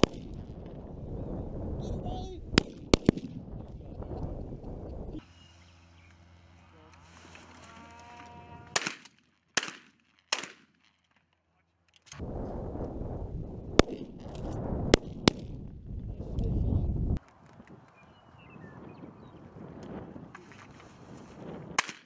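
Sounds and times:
shotgun shots with echo: 0:00.0 - 0:00.4, 0:02.6 - 0:03.3, 0:08.7 - 0:10.7
wind buffeting microphone: 0:00.0 - 0:05.2, 0:12.2 - 0:21.9.

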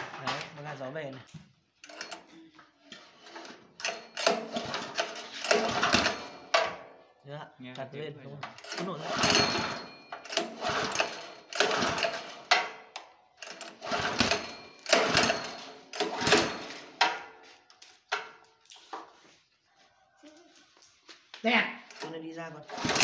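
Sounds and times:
engine pull-starter whirring rattle: 0:03.0 - 0:06.6, 0:08.5 - 0:17.2, 0:21.9 - 0:23.0.

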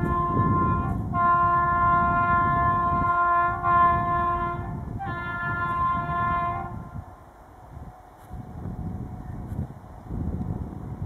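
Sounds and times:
train horn blasts: 0:00.0 - 0:07.1.

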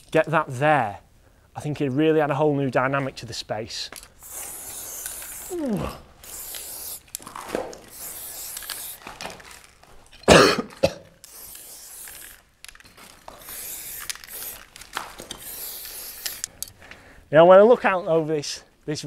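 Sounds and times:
spray can hissing: 0:04.2 - 0:09.7, 0:11.2 - 0:16.6
person coughing: 0:10.3 - 0:11.1.

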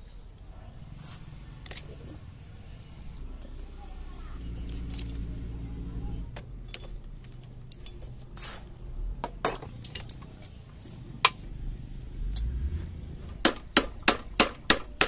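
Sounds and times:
metal clinks of hand tools: 0:09.2 - 0:10.4.

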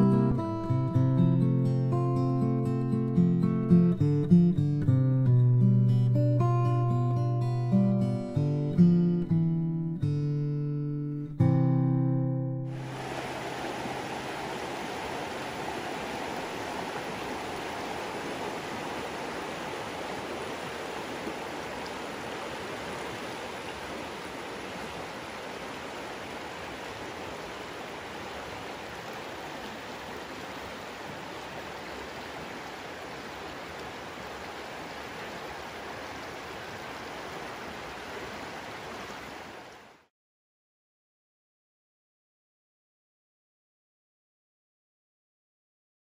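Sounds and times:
stream running over rocks: 0:12.7 - 0:40.1.

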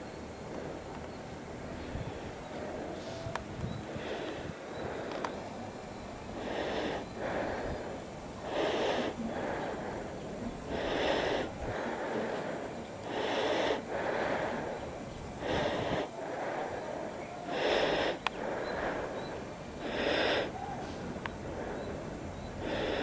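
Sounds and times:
background hiss: 0:00.0 - 0:23.0
person breathing close: 0:00.0 - 0:23.0.

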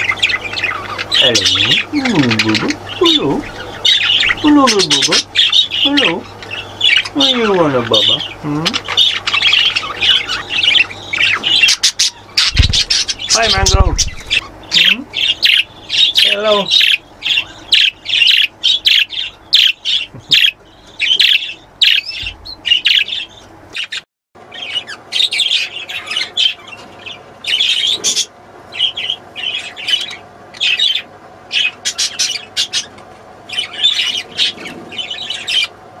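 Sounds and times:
budgerigars chirping: 0:00.0 - 0:35.8.

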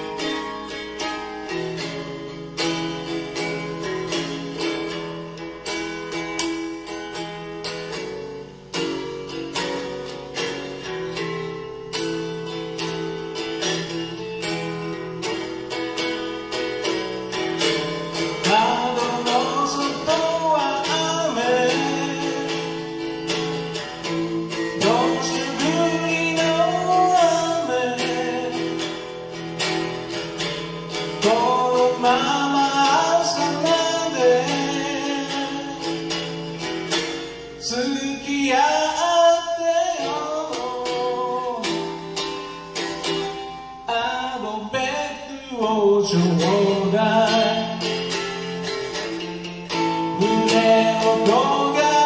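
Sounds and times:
acoustic guitar strumming: 0:00.0 - 0:52.0
man singing: 0:16.0 - 0:52.0.

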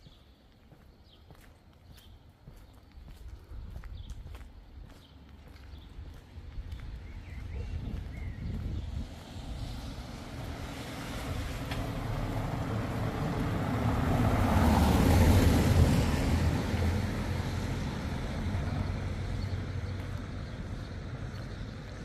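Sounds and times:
vehicle passing by: 0:07.4 - 0:22.0.

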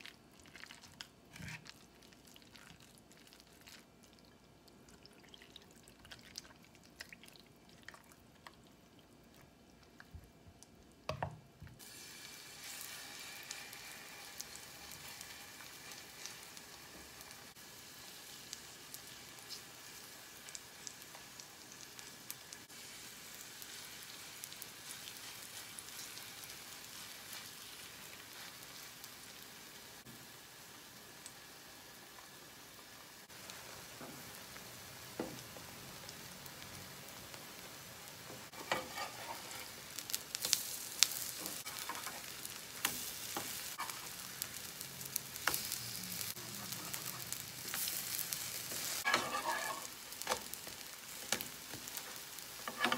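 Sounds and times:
spatula scraping pan: 0:01.3 - 0:01.8, 0:38.5 - 0:39.9, 0:48.7 - 0:50.4, 0:52.6 - 0:52.9
batter sizzling in hot oil: 0:11.7 - 0:52.9.

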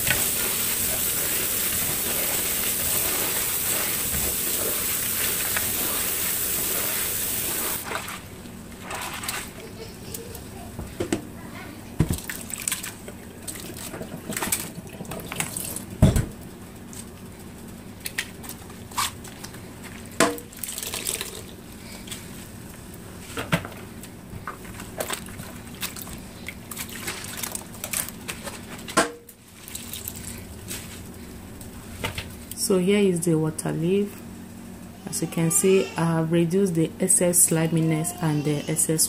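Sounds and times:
leaves washed in water sloshing: 0:00.0 - 0:09.6, 0:12.1 - 0:14.7, 0:24.7 - 0:28.8, 0:29.4 - 0:31.0.

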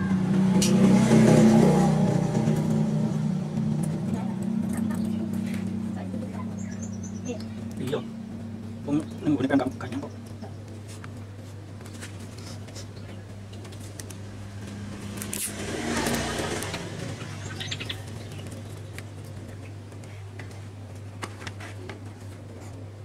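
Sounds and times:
low hum: 0:00.0 - 0:23.0
clicks and rustles of handling: 0:18.4 - 0:22.9.

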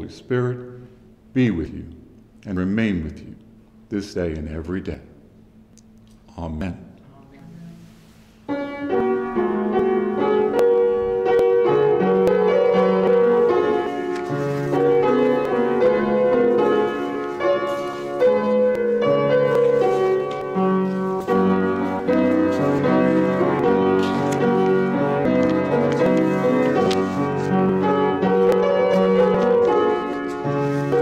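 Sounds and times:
upright piano chords and melody: 0:08.5 - 0:31.0.

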